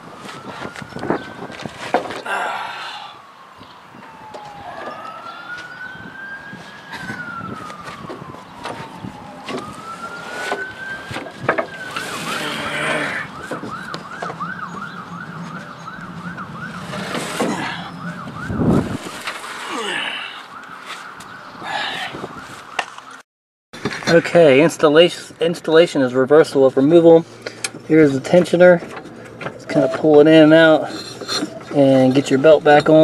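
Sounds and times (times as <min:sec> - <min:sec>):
siren fast yelp: 0:00.0 - 0:19.1
emergency siren wailing: 0:00.0 - 0:23.2.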